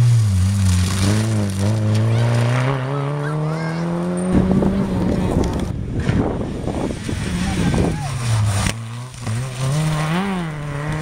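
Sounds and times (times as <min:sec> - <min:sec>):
rough crackling noise: 0:00.0 - 0:02.8, 0:04.9 - 0:06.3, 0:06.9 - 0:11.0
rally car engine accelerating: 0:00.0 - 0:11.0.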